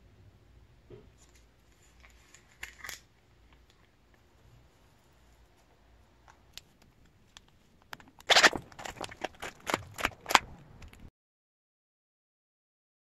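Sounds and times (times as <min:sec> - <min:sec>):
plastic sleeves crinkling: 0:01.2 - 0:04.2, 0:06.4 - 0:11.1.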